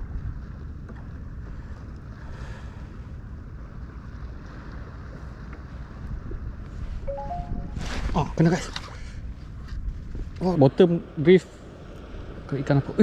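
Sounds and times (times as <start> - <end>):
small waves washing: 0.0 - 10.3
wind buffeting microphone: 0.0 - 13.0.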